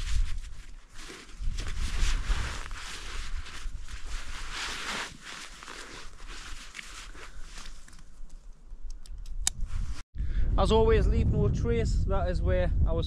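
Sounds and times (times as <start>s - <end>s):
low wind rumble on microphone: 0.0s - 4.7s, 8.8s - 13.0s
fabric rustling: 0.0s - 8.2s.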